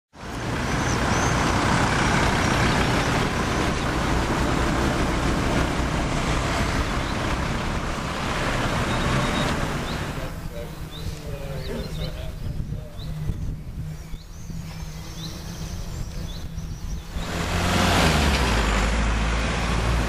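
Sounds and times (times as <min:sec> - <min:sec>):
heavy engine rumbling: 0:00.2 - 0:20.0
faint bird chirps: 0:08.9 - 0:17.2.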